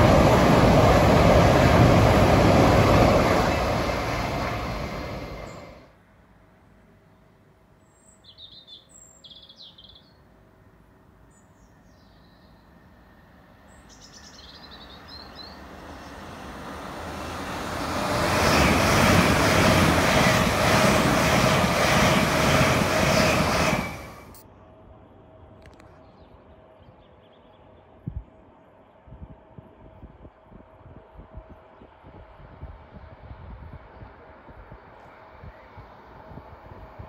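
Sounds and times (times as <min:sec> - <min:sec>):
passenger train passing: 0:00.0 - 0:06.0, 0:12.6 - 0:25.5, 0:29.7 - 0:37.0
bird chirps: 0:07.8 - 0:10.2, 0:13.7 - 0:16.2.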